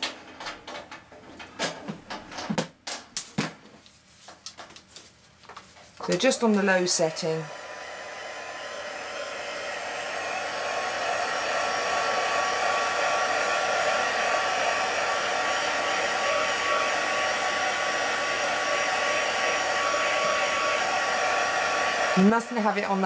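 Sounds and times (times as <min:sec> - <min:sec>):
heat tool blowing whir: 0:06.1 - 0:23.0.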